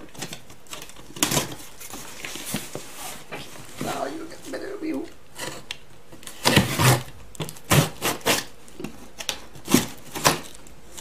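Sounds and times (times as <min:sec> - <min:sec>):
blade scraping cardboard: 0:05.3 - 0:11.0.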